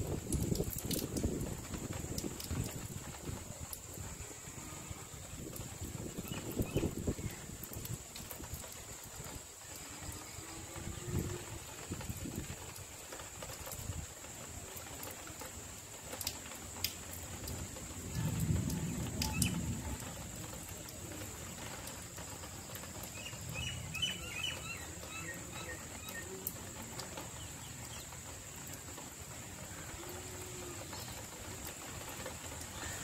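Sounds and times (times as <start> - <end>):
water drips: 0.0 - 4.2, 5.2 - 33.0
light rain hiss: 0.0 - 33.0
constant high hum: 16.5 - 33.0
bird chirping: 23.1 - 26.4.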